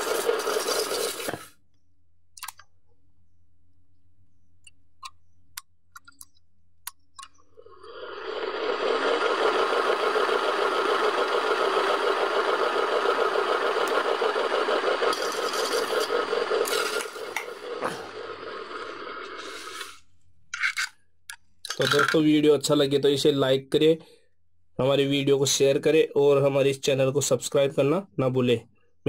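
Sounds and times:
fan motor rattling clatter: 9.2 - 17.5.

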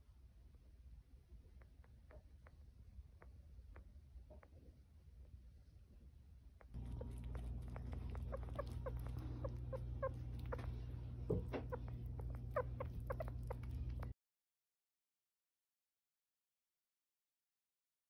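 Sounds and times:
steady low hum: 0.0 - 14.2
sugar gliders chirping: 6.8 - 14.1.

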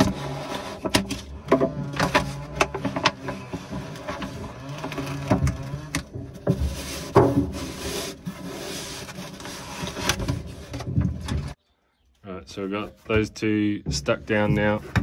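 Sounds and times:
backing paper peeling: 0.0 - 11.6.

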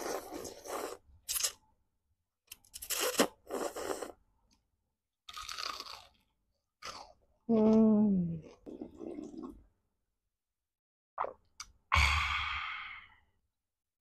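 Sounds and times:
slurping noodles: 0.0 - 1.6, 2.5 - 4.2, 8.4 - 9.7
crunching fried chicken: 5.3 - 7.1.

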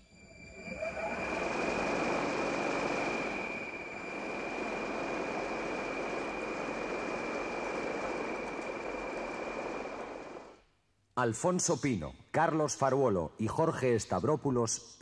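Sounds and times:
high-pitched whine: 0.0 - 10.6
machine-like hum and hiss: 0.0 - 10.6.

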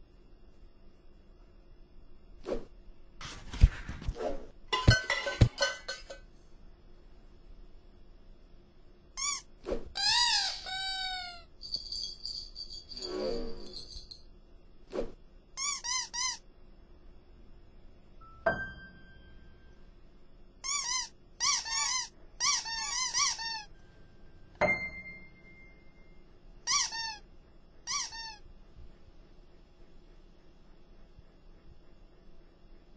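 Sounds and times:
cartoon squeaks: 9.2 - 11.5, 15.6 - 16.4, 20.6 - 23.7, 26.6 - 27.2, 27.9 - 28.4
sharp ringing hits: 24.6 - 26.3.

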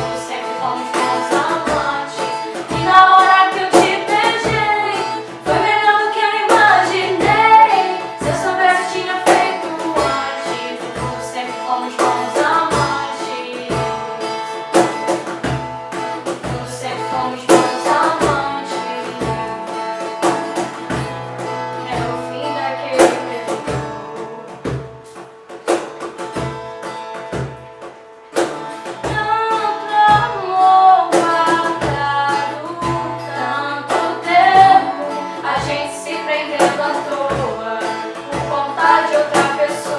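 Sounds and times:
women singing in harmony: 0.0 - 14.6, 16.2 - 19.8, 21.8 - 23.7, 29.2 - 39.9
acoustic guitar strummed: 0.0 - 39.9
cajon beat: 0.0 - 39.9.

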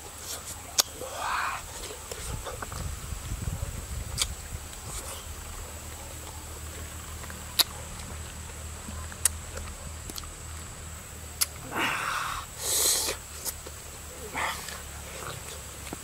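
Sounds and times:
lip smacks: 0.2 - 2.9, 4.1 - 6.4, 7.1 - 10.4, 11.3 - 11.8, 12.4 - 16.0
wet tearing of fruit: 0.2 - 2.9, 11.4 - 16.0.

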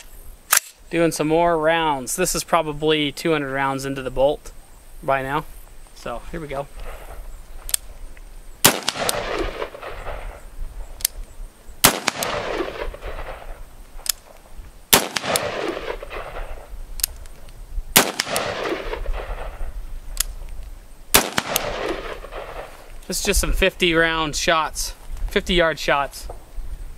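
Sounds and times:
rifle shots with echo: 8.6 - 10.5, 11.8 - 13.6, 14.9 - 16.7, 18.0 - 19.8, 21.1 - 22.9.

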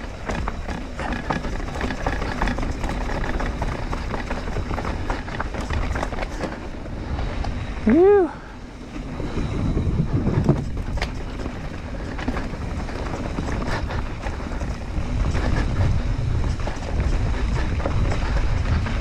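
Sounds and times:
bike clicks and rattles: 0.0 - 7.8, 8.6 - 19.0
wind buffeting microphone: 0.0 - 19.0.

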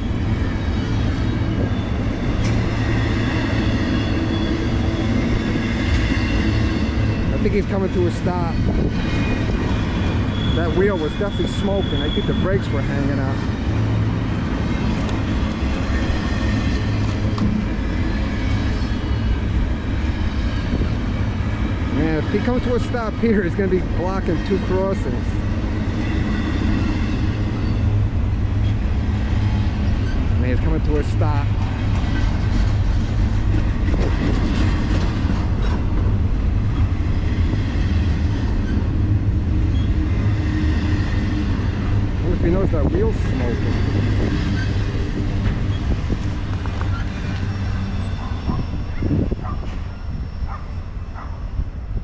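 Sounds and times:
train wheels rumbling on rails: 0.0 - 52.0
high brake squeals: 3.6 - 5.0, 10.2 - 12.9.

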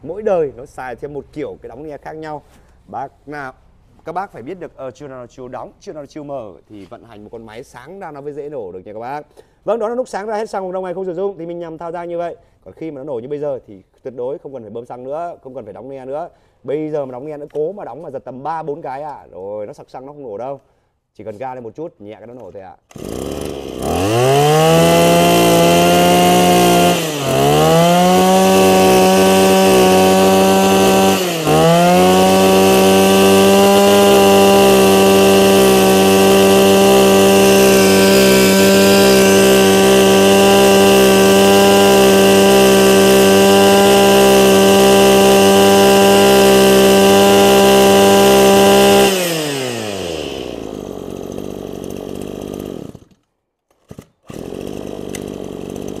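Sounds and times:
brush cutter engine revving: 22.9 - 56.0.

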